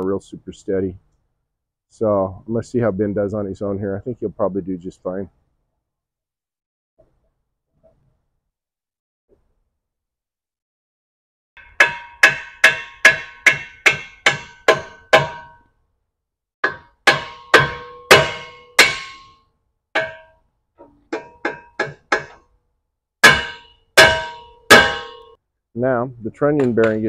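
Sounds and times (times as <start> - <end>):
hammer clanking on steel: 11.6 - 15.6, 16.6 - 19.4, 20.0 - 22.4, 23.2 - 25.4.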